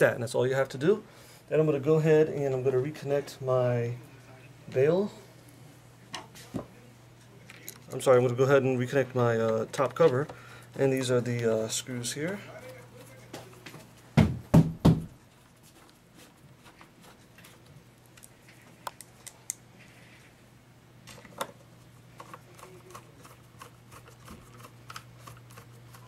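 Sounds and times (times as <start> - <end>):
loud knock: 14.2 - 15.1.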